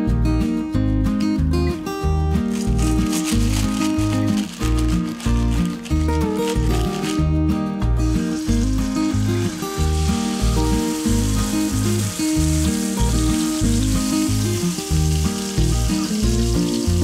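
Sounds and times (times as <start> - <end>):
music with rhythmic bass line: 0.0 - 17.0
meat sizzling in frying pan: 2.5 - 7.2, 8.1 - 17.0.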